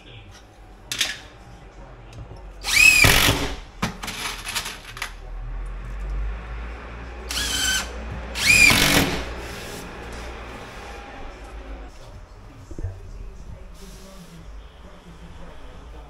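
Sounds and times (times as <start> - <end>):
cordless drill motor whine: 2.7 - 3.3, 7.3 - 9.2.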